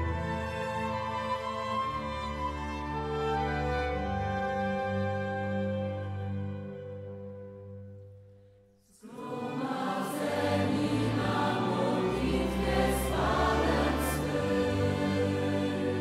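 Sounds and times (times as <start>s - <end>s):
music: 0.0s - 16.0s
choir singing with accompaniment: 8.8s - 16.0s.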